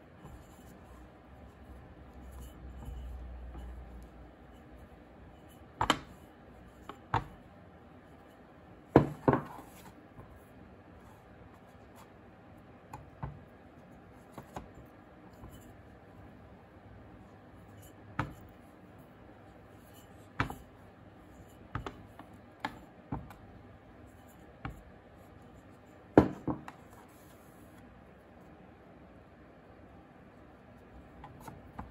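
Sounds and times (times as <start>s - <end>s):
knocks and taps of clay rolling: 5.8s - 6.2s, 6.8s - 7.4s, 8.9s - 10.4s, 12.9s - 13.5s, 14.3s - 14.8s, 18.1s - 18.6s, 20.3s - 20.7s, 21.7s - 23.5s, 24.6s - 24.9s, 26.2s - 26.8s, 31.2s - 31.9s.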